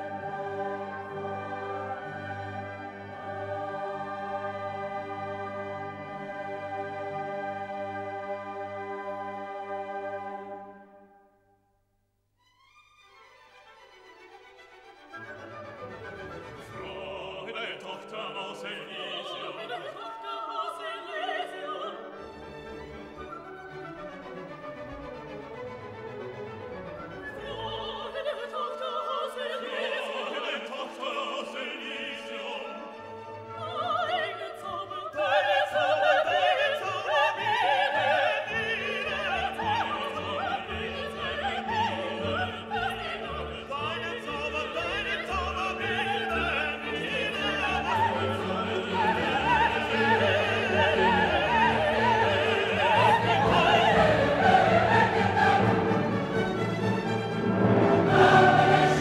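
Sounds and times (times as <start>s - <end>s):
operatic singing: 0.0s - 10.8s, 16.1s - 23.7s, 27.0s - 59.0s
orchestra playing: 0.0s - 11.2s, 12.8s - 28.6s, 35.8s - 59.0s.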